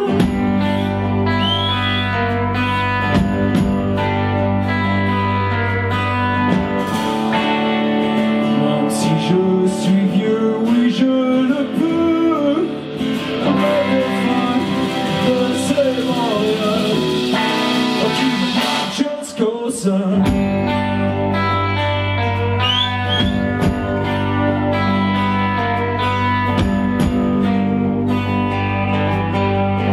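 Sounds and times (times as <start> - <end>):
man singing: 0.0 - 0.8, 8.3 - 21.0
live rock band playing: 0.0 - 29.9.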